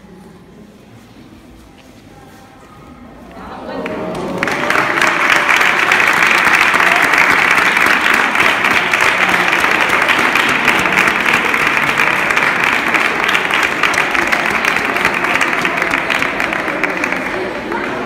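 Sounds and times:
children clapping: 3.8 - 18.0.

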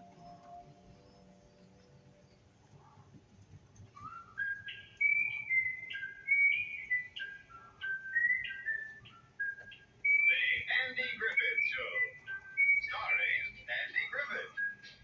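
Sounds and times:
person whistling a tune: 4.0 - 13.4.

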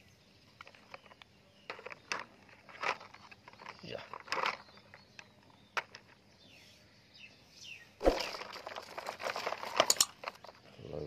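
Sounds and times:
toys rattling and scraping: 0.6 - 6.2, 8.1 - 10.8.

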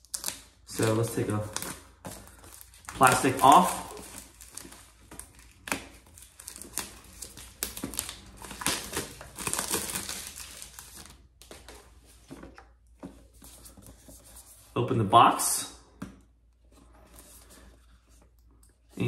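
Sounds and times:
plastic wrap crinkling and tearing: 0.0 - 11.7.

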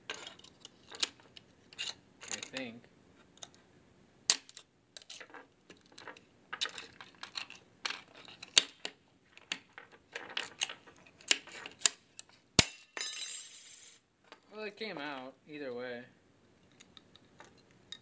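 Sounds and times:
metal parts clicking and scraping: 0.1 - 2.7, 4.3 - 14.0.

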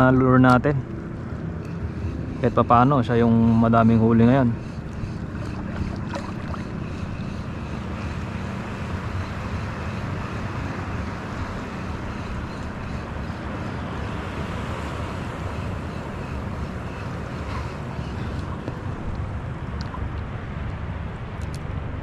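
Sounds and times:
wind rushing over microphone: 1.0 - 22.0
sea water lapping at shore: 4.8 - 7.2.

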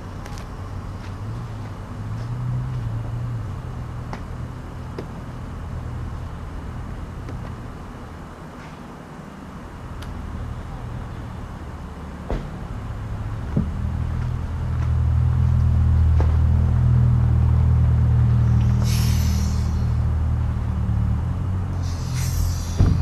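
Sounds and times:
low motor hum: 9.6 - 23.0
short hiss: 18.5 - 20.0, 21.8 - 23.0.

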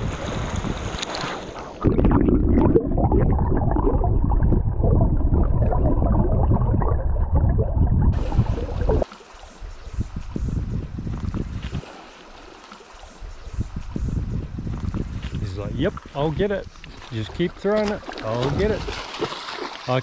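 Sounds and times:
underwater churning gurgling water: 1.7 - 9.1
river water splashing: 8.2 - 10.0, 11.6 - 14.0, 16.2 - 20.0.

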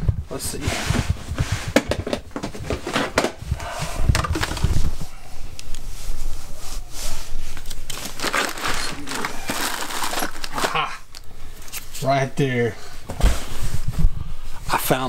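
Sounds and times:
rummaging in plastic bin: 0.3 - 3.4, 4.1 - 5.1, 7.5 - 10.8.

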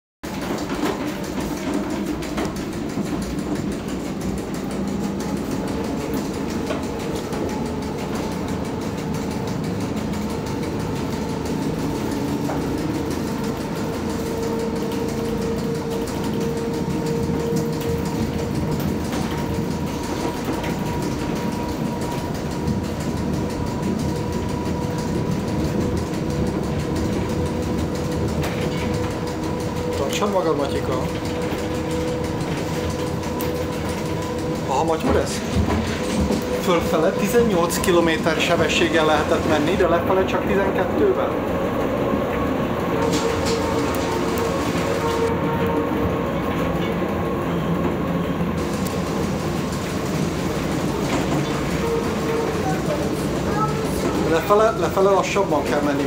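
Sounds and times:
railway car rumble: 0.2 - 56.0.

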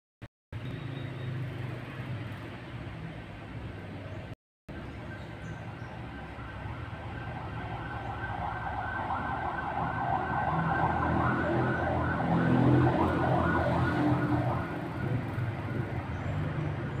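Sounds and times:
siren wailing: 6.1 - 15.4.

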